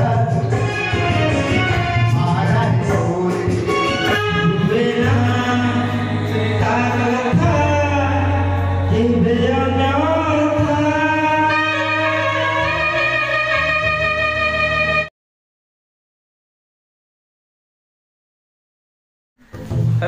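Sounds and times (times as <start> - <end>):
man singing into microphone: 0.0 - 14.2
electronic keyboard: 0.0 - 15.1.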